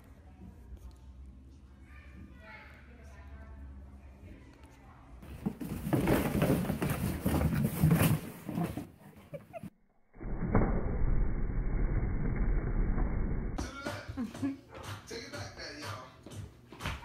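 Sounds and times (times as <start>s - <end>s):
muffled rustling: 5.2s - 9.6s.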